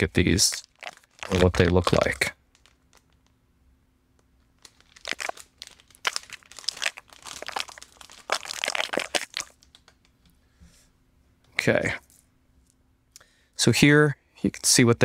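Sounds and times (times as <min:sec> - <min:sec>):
plastic bag crinkling: 0:00.2 - 0:03.3, 0:04.6 - 0:10.0.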